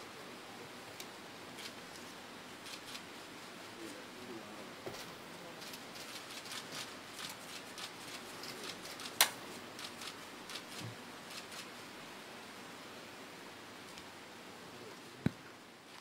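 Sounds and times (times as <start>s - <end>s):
paper and pen rustling: 4.9s - 11.7s.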